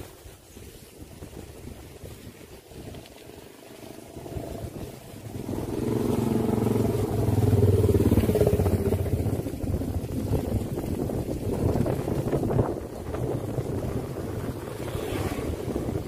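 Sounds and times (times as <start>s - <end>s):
motorcycle engine running: 4.0s - 16.0s.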